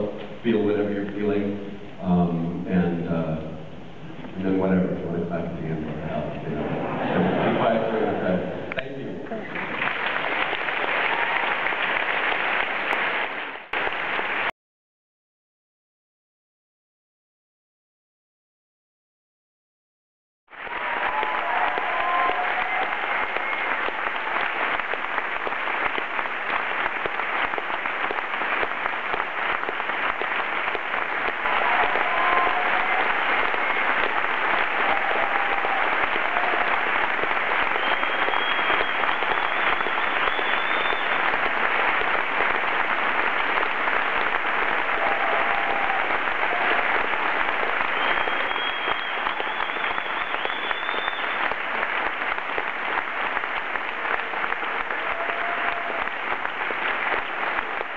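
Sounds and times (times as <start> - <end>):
audience cheering: 6.6 - 8.4, 9.4 - 14.5, 20.5 - 57.9
audience applauding: 6.6 - 14.6, 20.5 - 57.9.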